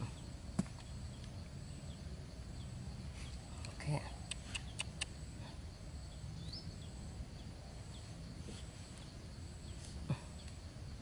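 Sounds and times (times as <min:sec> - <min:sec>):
high insect drone: 0:00.0 - 0:04.2, 0:05.0 - 0:11.0
rising bird chirp: 0:04.6 - 0:10.7.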